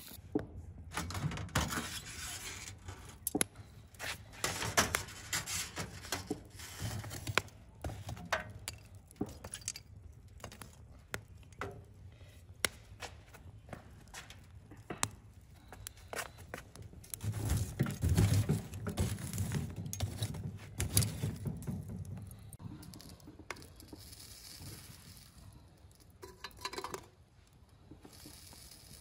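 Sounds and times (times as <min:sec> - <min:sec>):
wood fire crackling: 0:00.3 - 0:29.0
sharp pops of burning logs: 0:03.2 - 0:24.0
clinking: 0:22.9 - 0:27.2.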